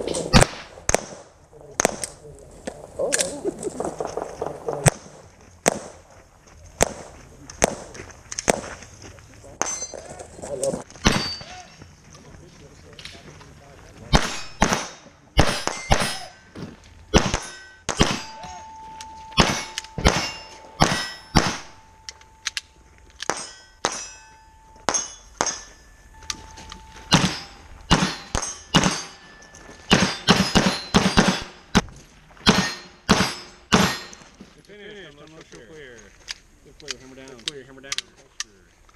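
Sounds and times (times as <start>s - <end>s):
pistol shots: 0.3s - 2.2s, 11.0s - 11.5s, 14.1s - 16.4s, 17.1s - 18.6s, 19.4s - 22.0s, 23.2s - 24.2s, 27.1s - 29.3s, 29.9s - 34.3s
steel plates clanging: 17.4s - 22.5s, 23.2s - 31.7s, 32.4s - 34.4s.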